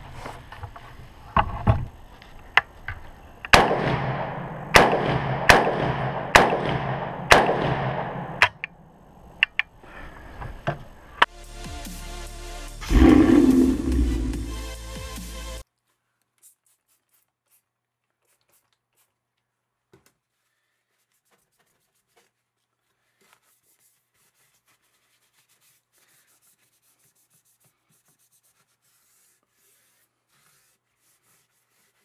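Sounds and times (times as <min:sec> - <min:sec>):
cloth rag wiping: 0:20.2 - 0:32.0.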